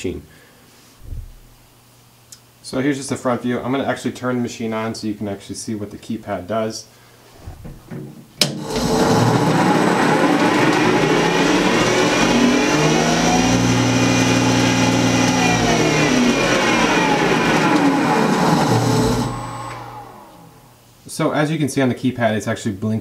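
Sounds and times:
jointer motor and cutterhead running: 8.4s - 20.6s.

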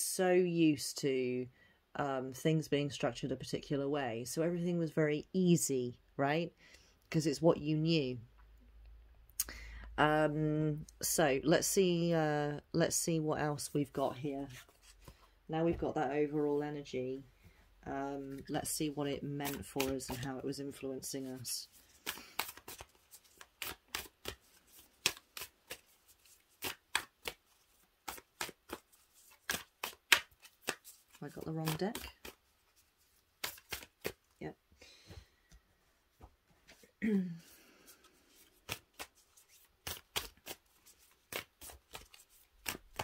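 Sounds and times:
cards being shuffled: 18.4s - 34.4s, 37.8s - 43.0s.

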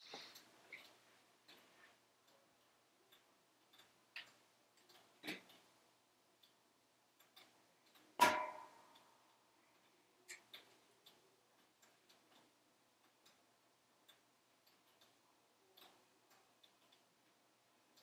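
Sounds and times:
wood fire crackling in a stove: 0.0s - 18.0s.

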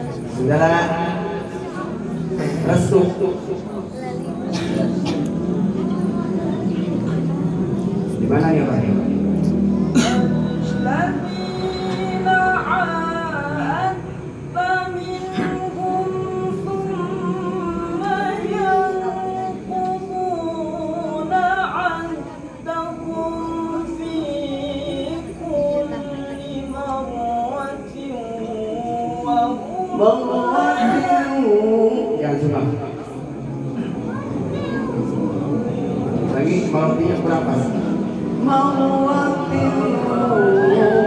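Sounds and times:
person reciting in melismatic chant: 10.0s - 33.5s, 34.7s - 41.0s.

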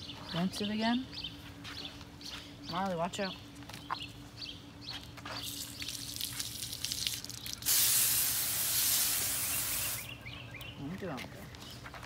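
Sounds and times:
hose nozzle water spraying: 5.5s - 10.0s
spray hissing on plastic bag: 7.6s - 10.1s.

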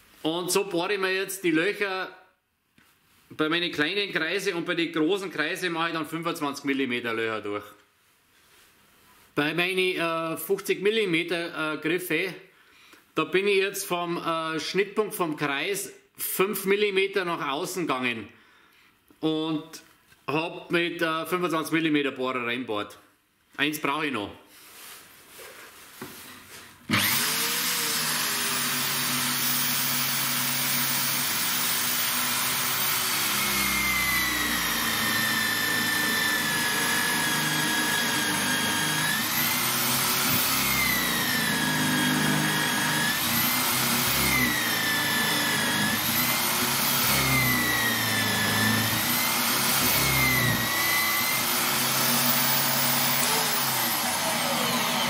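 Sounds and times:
drill bit cutting wood: 26.9s - 55.0s
drill motor whine: 26.9s - 55.0s.

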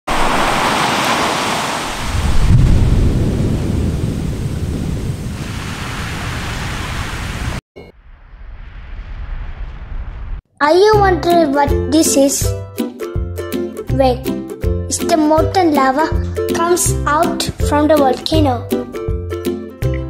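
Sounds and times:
eruption rushing roar: 0.1s - 10.4s
volcanic eruption rumbling blast: 0.1s - 10.4s.

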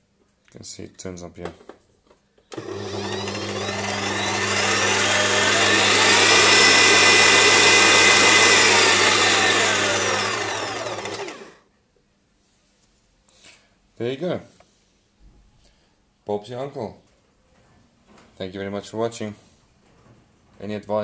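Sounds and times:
mixer motor whine: 2.5s - 11.6s.

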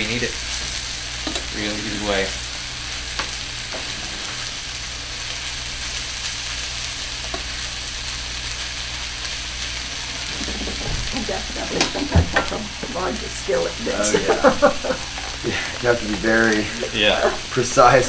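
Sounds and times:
food sizzling in a skillet: 0.0s - 18.0s
utensils knocking against pan: 1.2s - 1.5s, 10.1s - 13.2s.

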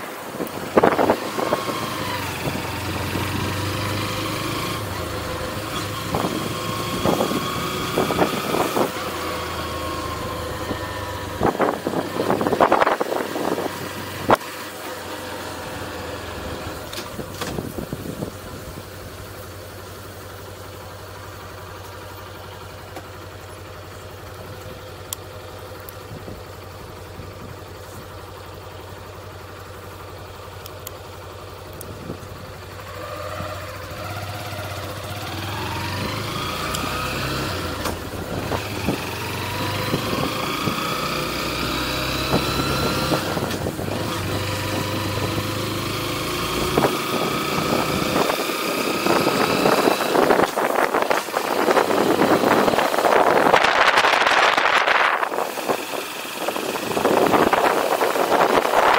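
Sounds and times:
motorcycle engine accelerating: 0.0s - 58.9s
wind noise on microphone: 0.3s - 2.6s, 10.7s - 14.4s, 17.1s - 18.8s, 38.0s - 41.0s, 46.6s - 58.9s.

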